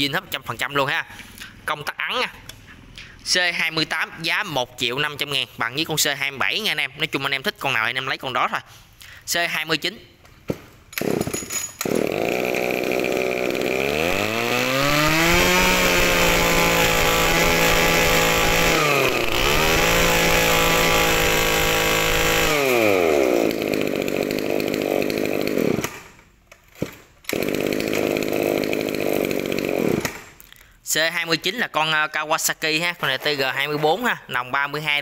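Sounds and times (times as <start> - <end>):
brush cutter engine revving: 11.0 - 26.1, 26.8 - 30.3.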